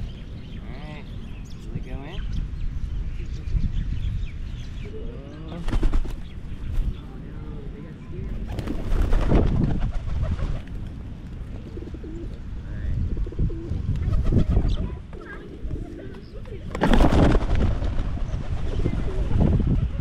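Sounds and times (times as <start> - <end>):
wings flapping: 5.6 - 6.9, 8.3 - 11.5, 14.0 - 19.8
pigeons cooing: 11.5 - 12.5, 13.1 - 17.2, 18.0 - 20.0.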